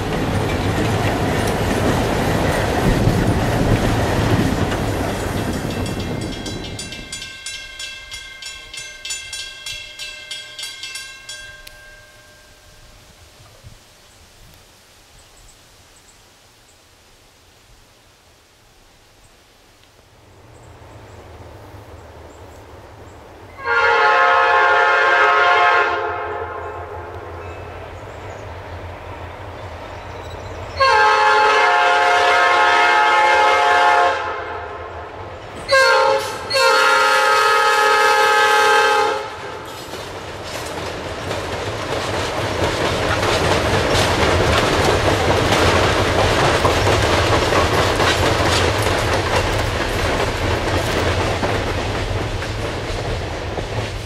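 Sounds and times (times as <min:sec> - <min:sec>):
wheel clatter over rail joints: 0:00.0 - 0:11.7, 0:39.6 - 0:54.0
locomotive air horn blasts: 0:23.5 - 0:27.2, 0:30.8 - 0:35.0, 0:35.7 - 0:39.8.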